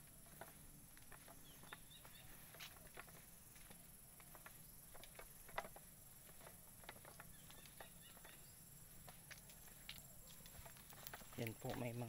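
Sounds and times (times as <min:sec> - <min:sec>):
footsteps on concrete: 0:00.0 - 0:12.0.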